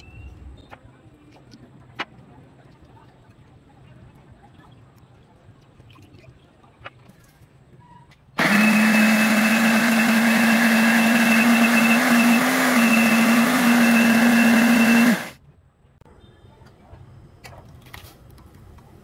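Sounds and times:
blender grinding: 8.4s - 15.4s.

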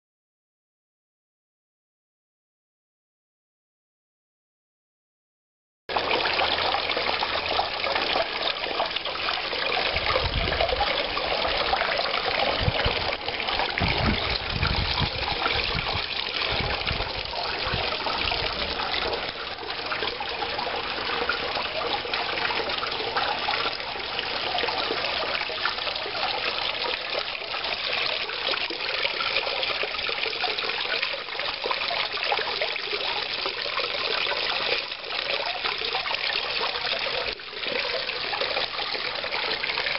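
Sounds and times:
water spilling over rocks: 5.9s - 39.9s
low rumbling thumps: 13.8s - 18.7s.

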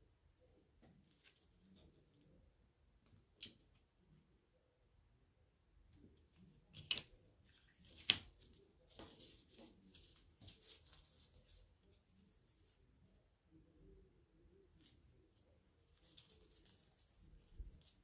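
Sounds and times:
transfer sheet rustling: 6.8s - 12.8s.

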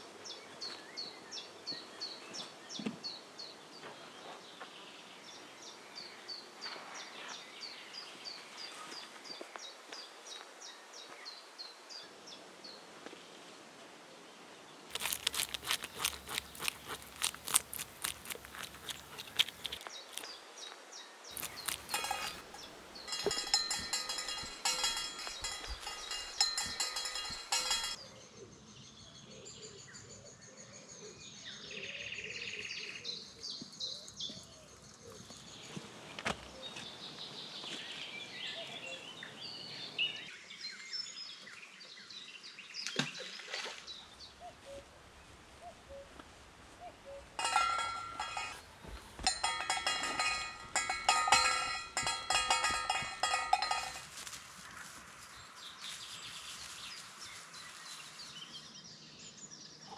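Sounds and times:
wild birds singing: 14.9s - 54.0s, 54.6s - 59.9s
rhythmic metallic jingle: 21.9s - 28.0s, 47.4s - 48.6s, 49.3s - 54.1s
footsteps swishing through grass: 54.0s - 58.5s.

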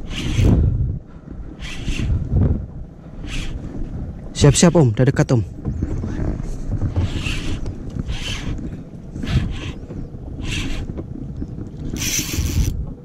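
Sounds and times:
wind rumble on microphone: 0.0s - 13.0s
fishing reel winding: 12.0s - 12.8s.

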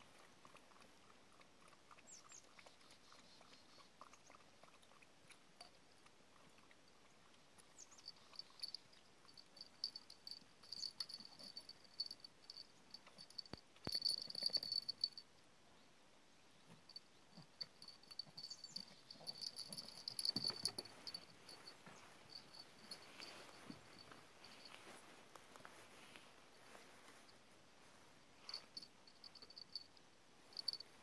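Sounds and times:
light ticks: 4.1s - 15.2s
insect chirping: 7.8s - 15.2s, 16.9s - 24.8s, 28.5s - 29.9s, 30.5s - 30.8s.

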